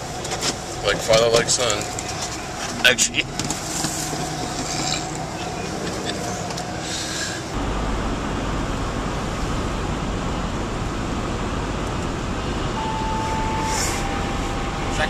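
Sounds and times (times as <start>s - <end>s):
car road noise at highway speed: 0.0s - 15.0s
steady tone: 7.5s - 15.0s.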